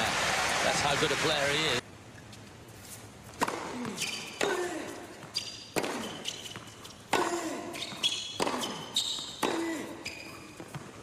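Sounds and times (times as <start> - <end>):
ball bounces: 3.4 - 9.8
shoe squeaks on court: 3.8 - 4.4, 5.2 - 7.1, 7.7 - 11.0
tennis racket hits: 5.7 - 9.9.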